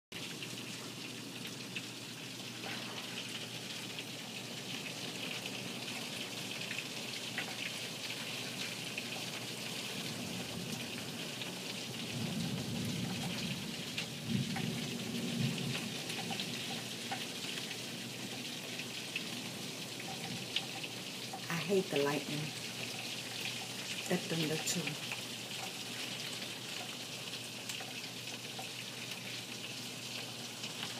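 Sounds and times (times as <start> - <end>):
heavy rain pouring: 0.2 - 30.9
low thunder rumbling: 12.1 - 15.9.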